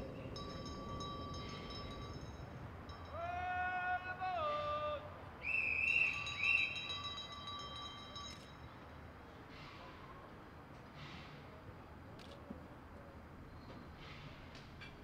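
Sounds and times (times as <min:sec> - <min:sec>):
shrill hand whistle blasts: 0:05.4 - 0:07.0.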